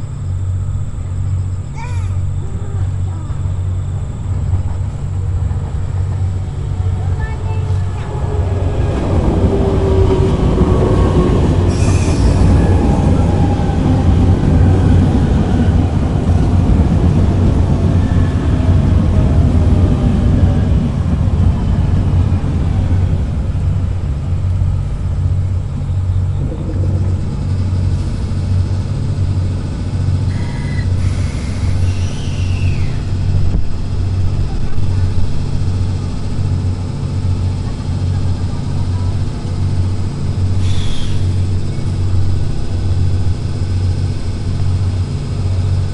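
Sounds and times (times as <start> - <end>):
electric train motor whine: 0.0 - 45.9
steady low hum: 0.0 - 45.9
wheel and rail noise: 0.0 - 45.9
wheel squeal: 30.3 - 33.1.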